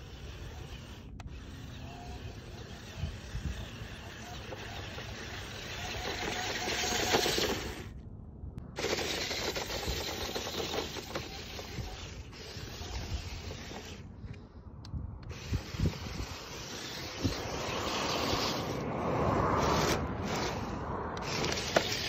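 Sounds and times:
toy truck driving over sand: 0.0 - 8.0, 8.7 - 14.3, 15.2 - 22.0
wind on microphone: 0.0 - 22.0.

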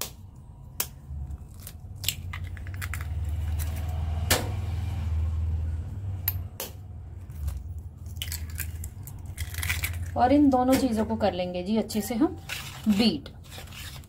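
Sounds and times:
eggs cracked on bowl rim: 8.1 - 10.1.

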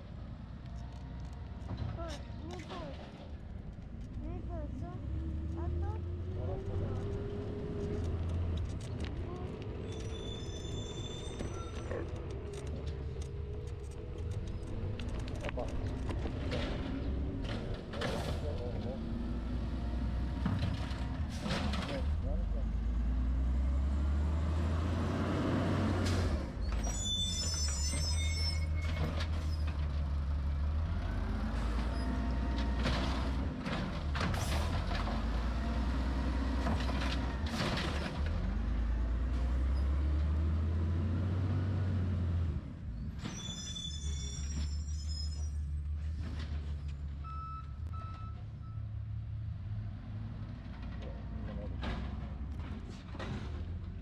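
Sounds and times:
diesel engine rumble: 0.0 - 54.0
short high-pitched squeal: 9.9 - 11.9, 26.6 - 29.7, 43.2 - 45.8
short beeps: 47.2 - 48.9.

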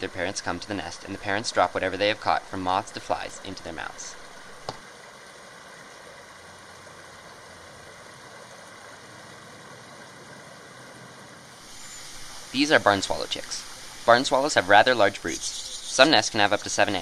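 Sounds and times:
creek water rushing: 0.0 - 17.0.

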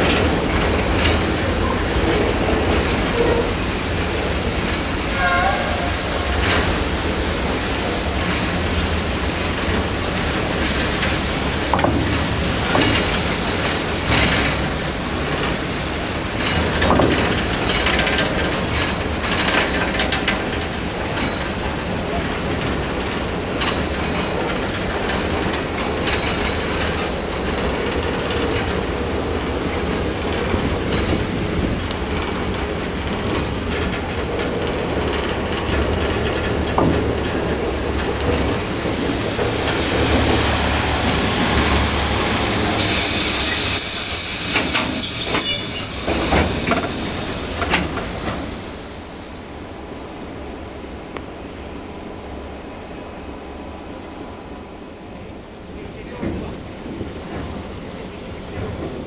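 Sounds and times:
wheels clicking over rail joints: 0.0 - 42.9, 55.0 - 59.0
train rumbling on track: 0.0 - 59.0
bright hiss: 41.4 - 49.2.

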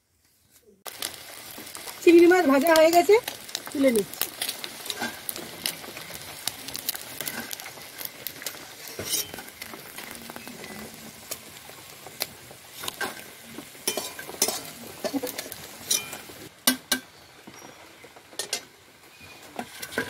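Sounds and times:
prawns sizzling in oil: 0.8 - 20.0
metal spatula scraping and clinking: 8.9 - 9.5, 13.8 - 16.3.

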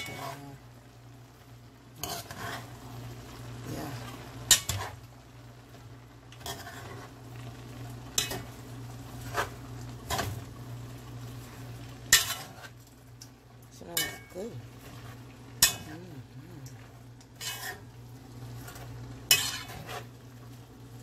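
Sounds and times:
steady low hum: 0.0 - 21.0
spatula scraping a metal pot: 2.0 - 2.8, 6.4 - 7.2, 9.2 - 10.3, 12.1 - 12.8, 17.4 - 17.9, 18.6 - 20.2.

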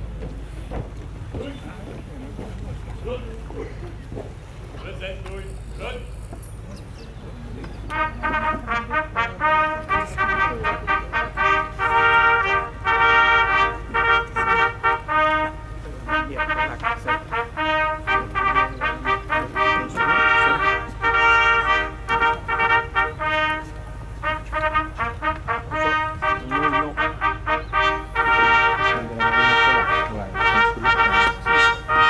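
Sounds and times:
brass band playing: 7.9 - 32.0.

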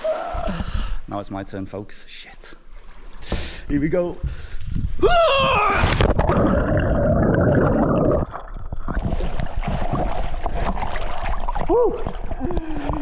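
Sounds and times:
water splashing and sloshing: 5.5 - 13.0
underwater bubbling gurgle: 6.1 - 13.0.

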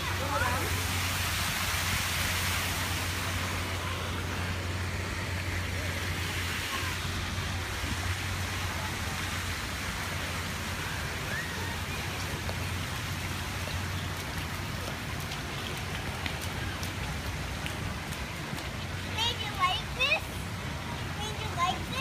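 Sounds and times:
fountain water hissing: 0.0 - 22.0.

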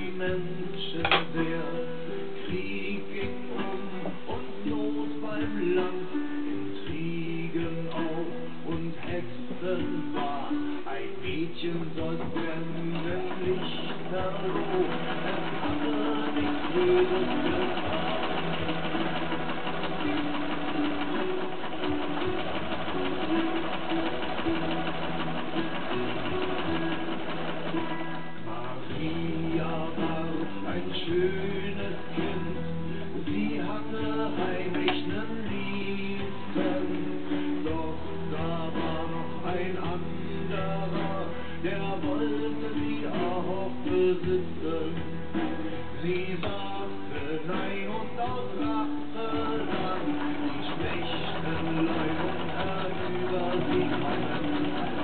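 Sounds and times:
instrumental background music: 0.0 - 55.0
sewing machine stitching: 12.0 - 32.0, 47.6 - 55.0.

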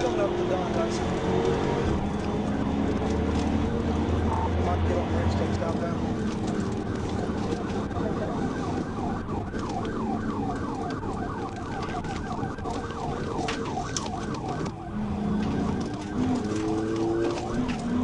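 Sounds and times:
police siren yelp: 0.0 - 18.0
vehicle and road noise: 0.0 - 18.0.

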